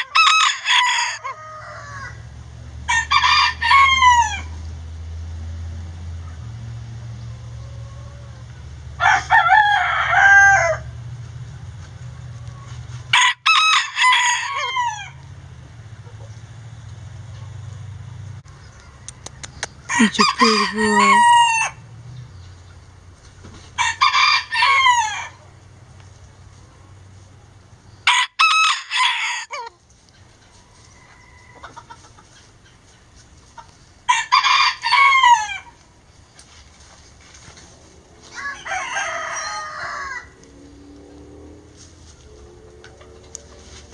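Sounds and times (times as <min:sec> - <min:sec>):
rooster crowing: 0:00.0 - 0:02.3, 0:02.9 - 0:04.6, 0:07.5 - 0:10.9, 0:13.1 - 0:15.2, 0:18.8 - 0:21.8, 0:23.8 - 0:25.4, 0:28.0 - 0:29.7, 0:30.7 - 0:31.9, 0:34.1 - 0:35.8, 0:38.3 - 0:40.6.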